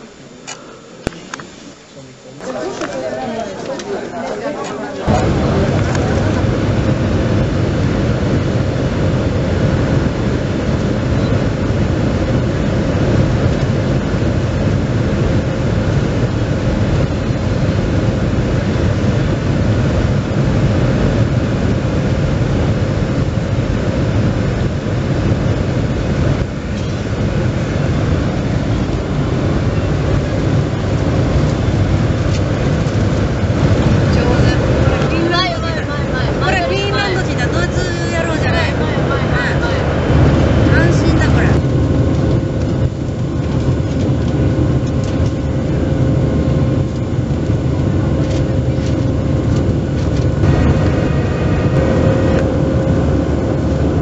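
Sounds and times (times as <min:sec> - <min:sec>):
jet engine rumble in cabin: 0:00.0 - 0:54.0
thin steady engine whine: 0:00.0 - 0:54.0.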